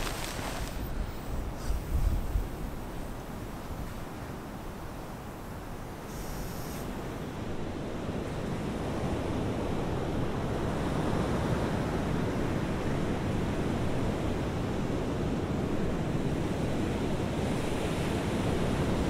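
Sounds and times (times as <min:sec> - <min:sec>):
wind on microphone: 0:00.0 - 0:10.6
sea waves washing on shore: 0:00.0 - 0:19.0.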